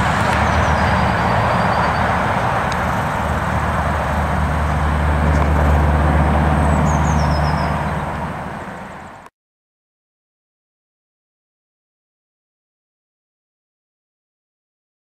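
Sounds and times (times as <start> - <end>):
diesel truck engine driving off: 0.0 - 9.3.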